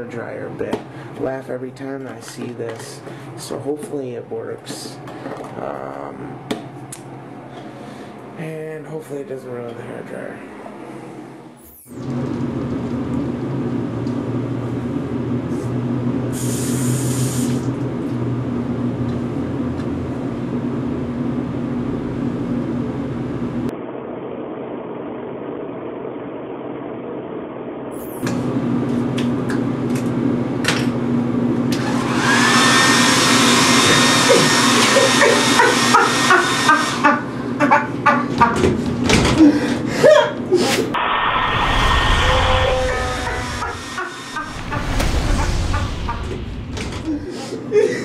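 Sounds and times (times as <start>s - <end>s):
hair dryer blowing air: 31.7s - 37.2s, 41.0s - 44.6s.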